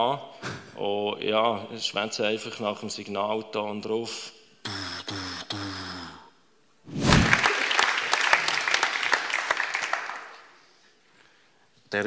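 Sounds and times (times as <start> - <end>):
audience applause: 7.1 - 10.6.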